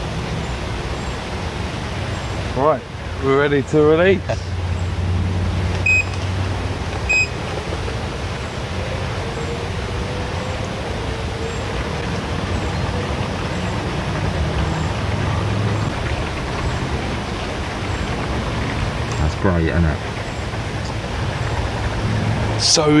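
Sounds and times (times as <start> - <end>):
low rumbling noise: 0.0 - 23.0
high electronic beep: 5.8 - 6.1, 7.1 - 7.3.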